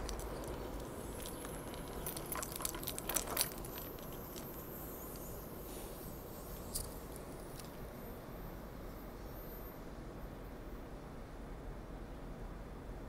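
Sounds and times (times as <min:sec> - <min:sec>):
sharp clicks and crackles: 0:00.0 - 0:05.3
electric train rumbling away: 0:00.0 - 0:11.7.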